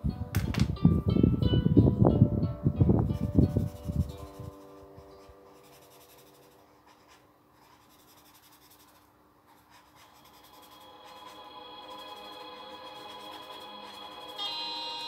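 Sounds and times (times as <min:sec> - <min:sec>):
pencil sketching on paper: 0:03.2 - 0:15.0
background music: 0:10.0 - 0:15.0.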